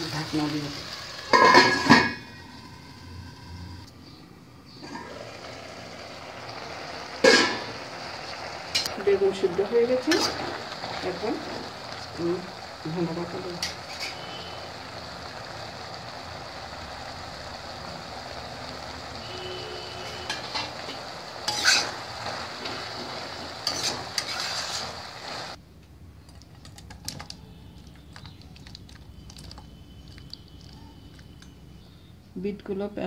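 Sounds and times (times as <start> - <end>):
curry sizzling in a pan: 0.0 - 4.1, 4.7 - 25.6, 27.7 - 32.0
metal spatula scraping a pan: 10.0 - 10.6, 13.6 - 14.4, 20.2 - 25.0.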